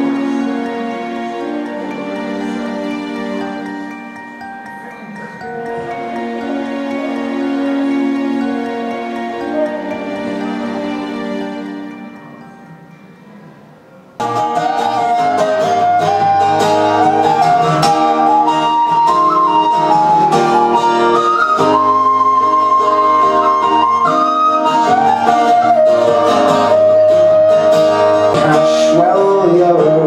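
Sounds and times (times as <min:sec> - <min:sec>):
strummed acoustic guitar: 0:00.0 - 0:30.0
tin whistle melody: 0:03.8 - 0:10.9, 0:14.2 - 0:29.2.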